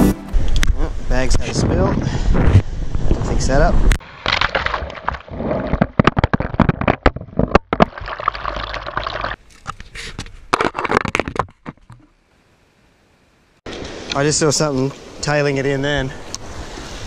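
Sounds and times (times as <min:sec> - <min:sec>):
camera knocking and scraping on rock: 0:04.2 - 0:08.2, 0:09.3 - 0:12.1.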